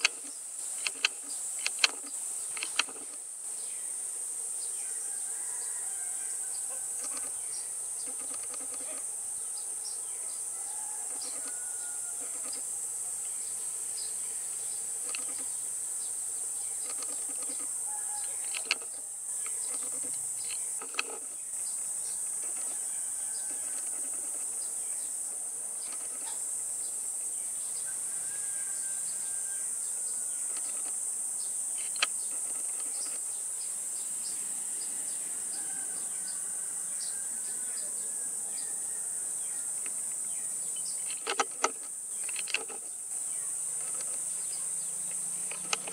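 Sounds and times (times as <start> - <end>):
sharp clicks: 0.0 - 3.2, 15.0 - 15.4, 18.4 - 21.3, 31.8 - 33.2, 41.0 - 42.9, 45.1 - 45.9
high-pitched insect drone: 0.0 - 45.9.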